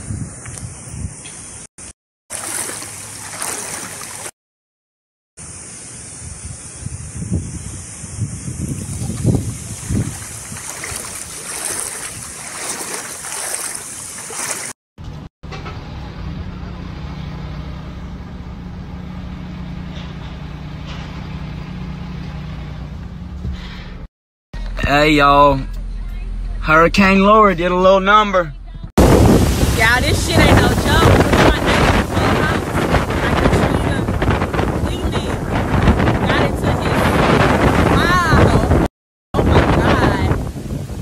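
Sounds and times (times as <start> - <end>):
wading through water: 2.3 - 4.4, 8.7 - 14.8, 29.2 - 35.2.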